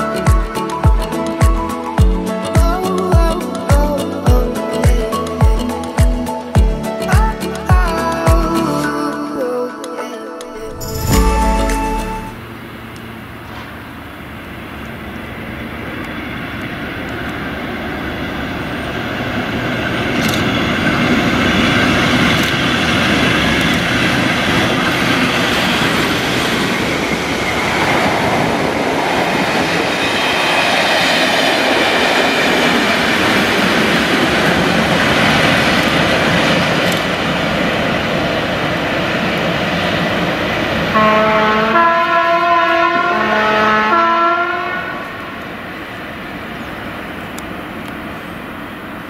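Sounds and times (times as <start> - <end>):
train wheels on rails: 10.6 - 41.0
diesel locomotive engine: 10.6 - 49.0
wheels clicking over rails: 20.0 - 29.8.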